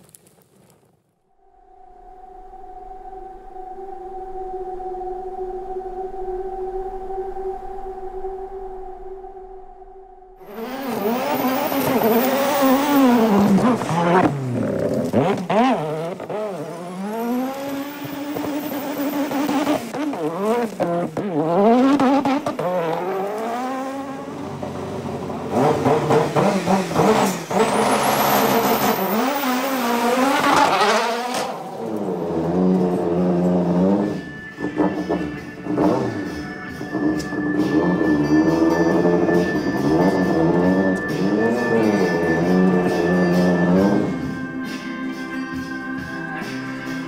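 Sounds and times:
high whining sweeps: 1.3 - 14.2
car engine revving hard: 10.4 - 44.4.

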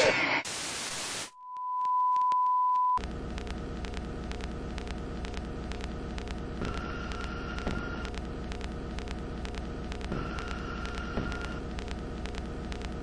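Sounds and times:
faint crackling clicks: 3.0 - 13.0
low hum: 3.0 - 13.0.

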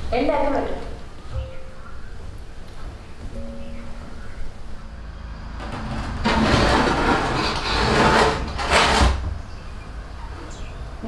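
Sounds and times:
wooden door scraping open: 5.5 - 9.4.

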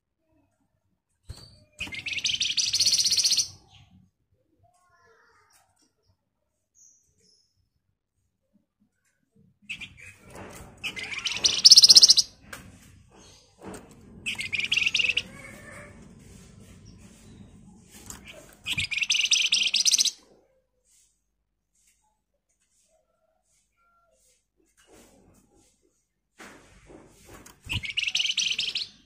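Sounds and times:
bird harsh rattling chatter: 1.9 - 3.6, 9.7 - 12.4, 13.1 - 20.2, 27.6 - 29.0.

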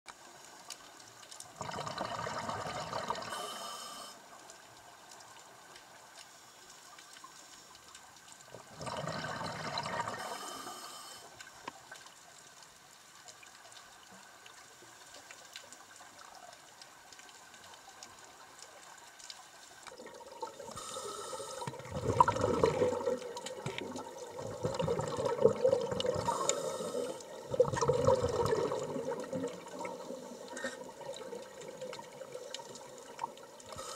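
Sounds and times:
underwater exhaled air bubbling: 1.5 - 4.2, 8.5 - 11.2, 19.9 - 33.9.

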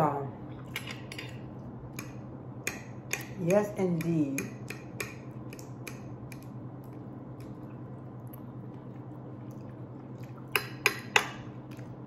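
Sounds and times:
steady low hum: 0.0 - 12.0
faint chewing: 5.5 - 12.0.

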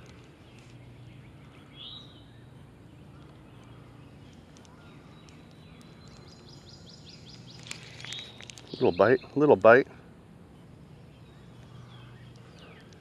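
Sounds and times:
low steady hum: 0.0 - 13.0
faint bird chirps: 0.2 - 9.4, 10.5 - 13.0.

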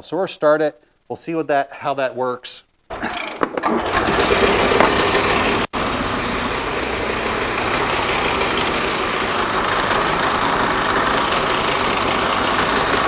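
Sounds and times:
snowmobile engine idling: 3.2 - 13.0.

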